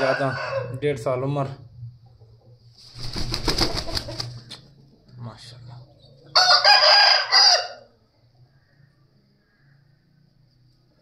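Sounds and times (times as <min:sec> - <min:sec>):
rooster crowing: 0:00.0 - 0:00.8, 0:06.3 - 0:08.0.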